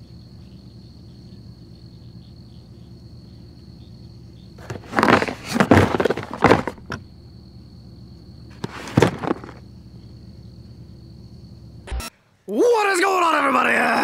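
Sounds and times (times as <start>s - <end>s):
crickets trilling: 0.0s - 14.0s
cardboard box scraping and rustling: 4.6s - 7.0s, 8.5s - 9.6s.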